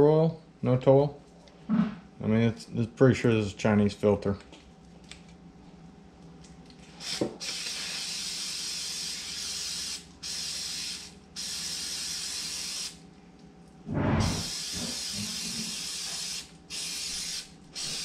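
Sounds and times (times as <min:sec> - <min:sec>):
aerosol spray hissing: 0:07.0 - 0:13.0, 0:14.3 - 0:18.0.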